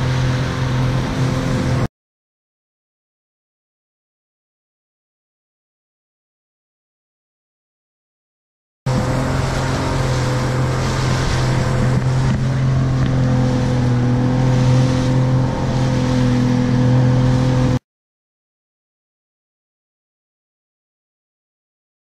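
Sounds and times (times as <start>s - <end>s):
outboard motor droning: 0.0s - 1.9s, 8.9s - 17.8s
hiss of wind and water: 8.9s - 16.3s.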